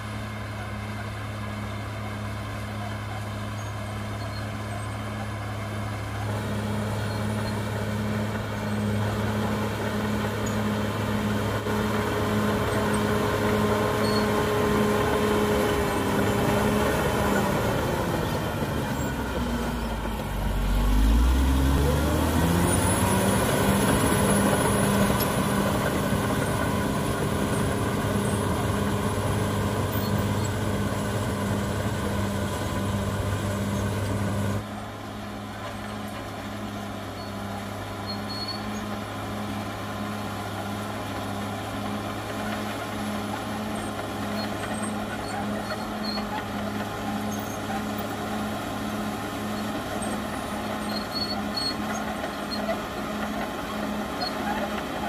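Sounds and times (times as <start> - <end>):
bulldozer diesel engine running hard: 0.0 - 55.0.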